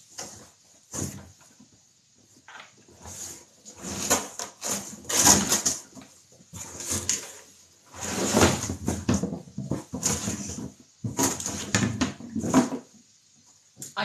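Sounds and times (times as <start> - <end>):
cardboard scraping and rustling: 2.9 - 12.9.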